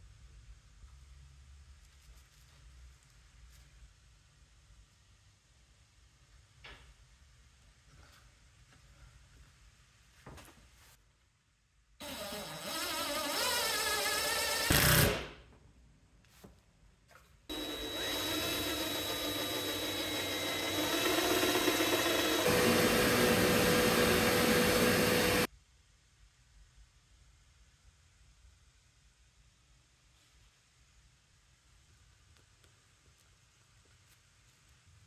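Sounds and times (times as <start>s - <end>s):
power tool motor running: 12.0s - 14.8s, 17.5s - 25.5s.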